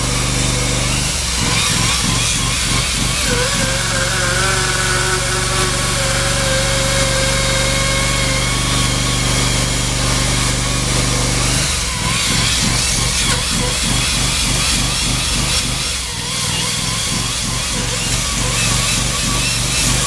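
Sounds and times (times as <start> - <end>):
chainsaw engine drone: 0.0 - 20.0
chainsaw grinding through concrete: 0.0 - 20.0.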